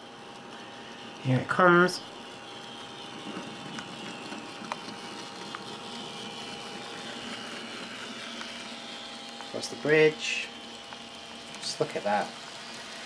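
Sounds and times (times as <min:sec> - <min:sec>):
model train motor whirring: 0:00.0 - 0:13.0.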